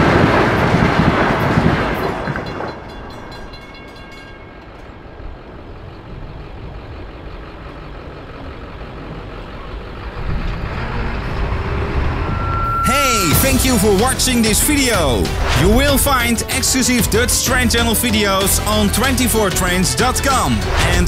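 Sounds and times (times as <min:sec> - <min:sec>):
electric train passing: 0:00.0 - 0:19.5
traffic noise: 0:00.0 - 0:21.0.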